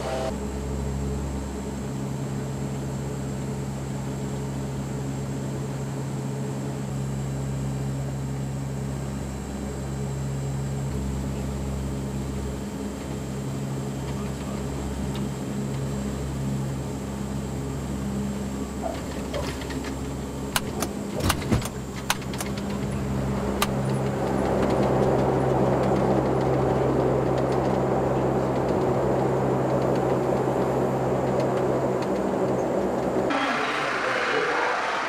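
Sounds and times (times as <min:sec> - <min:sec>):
faint high whine: 0:00.0 - 0:19.4, 0:32.5 - 0:35.0
aircraft engines humming: 0:00.0 - 0:35.0.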